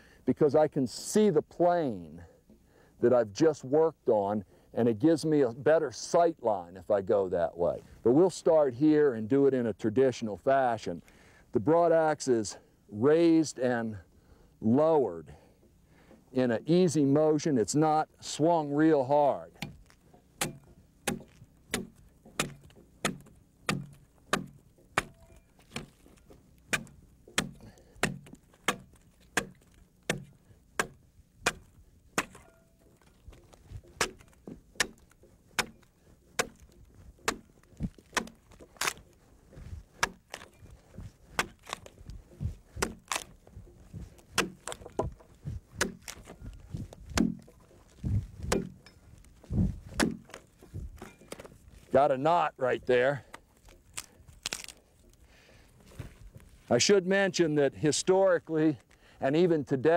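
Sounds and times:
axe chopping into log: 19.6 - 42.0, 42.7 - 43.4, 44.0 - 48.8, 49.9 - 50.4.

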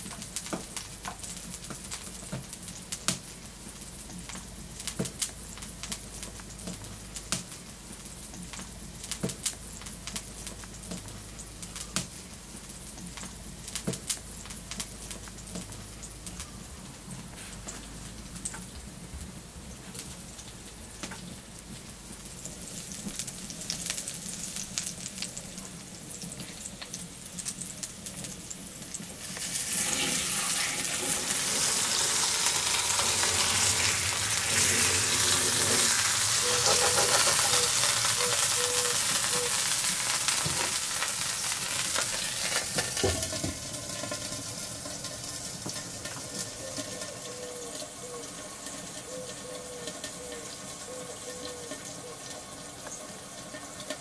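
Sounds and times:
meat sizzling on grill plate: 19.8 - 54.0.

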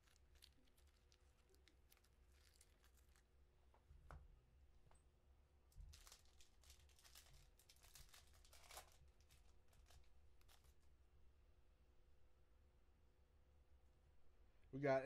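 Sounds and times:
plastic wrapper tearing and crinkling: 0.0 - 3.3, 5.8 - 10.9.

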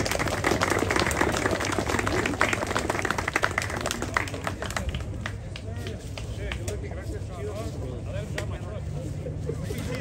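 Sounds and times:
crowd applauding: 0.0 - 5.6.

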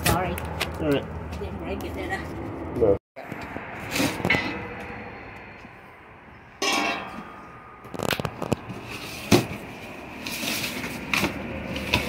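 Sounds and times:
cardboard crackling and scraping: 7.9 - 12.0.

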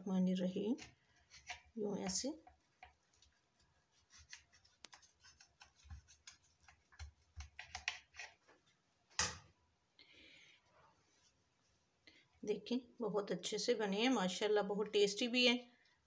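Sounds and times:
knife cutting through flatbread: 0.8 - 1.8, 3.9 - 8.4.

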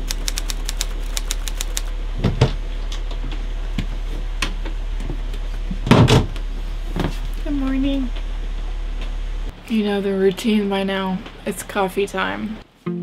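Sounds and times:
sharp irregular clicks: 0.0 - 1.9
steady low hum: 0.0 - 13.0.

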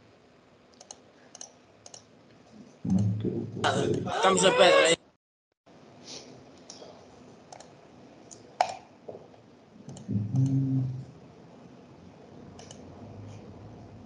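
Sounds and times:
short low vocal sound: 9.9 - 11.1.

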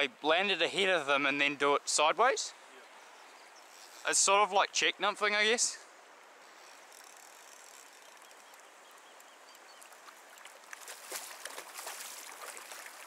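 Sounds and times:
shallow river flowing: 0.0 - 13.0
fish thrashing and splashing: 9.8 - 13.0.

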